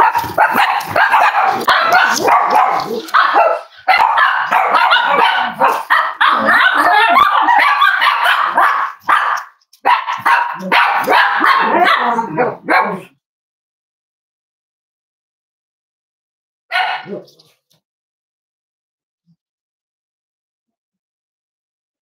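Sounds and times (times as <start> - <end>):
dogs barking and yipping: 0.0 - 13.1, 16.7 - 17.5.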